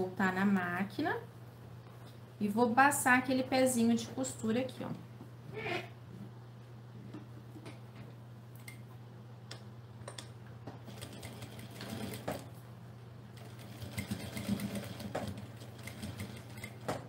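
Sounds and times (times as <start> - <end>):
sewing machine stitching: 10.9 - 12.5.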